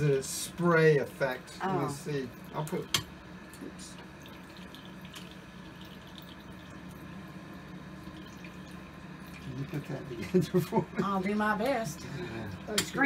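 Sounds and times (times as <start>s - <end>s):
faucet running into sink: 2.1s - 7.2s, 8.0s - 10.8s.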